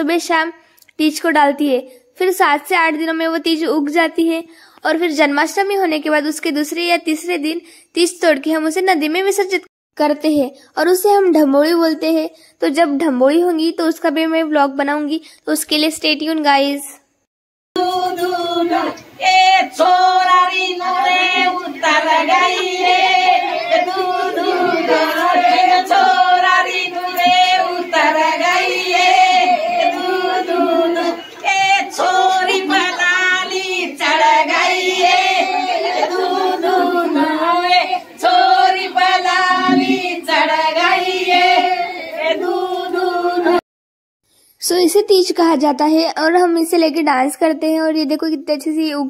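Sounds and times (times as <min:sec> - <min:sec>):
women and girls singing unaccompanied: 0:17.8 - 0:43.6.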